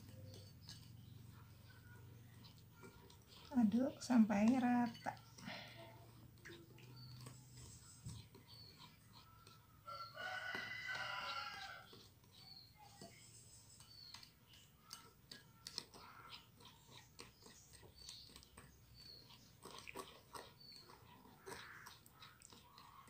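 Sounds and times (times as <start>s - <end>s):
whisk scraping glass bowl: 0.0s - 19.6s
rooster crowing: 9.8s - 11.9s.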